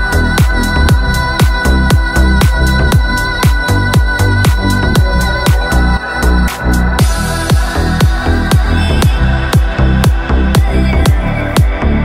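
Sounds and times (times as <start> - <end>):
electronic dance music: 0.0 - 12.0
steady kick drum beat: 0.0 - 12.0
held synth tones: 2.9 - 10.6.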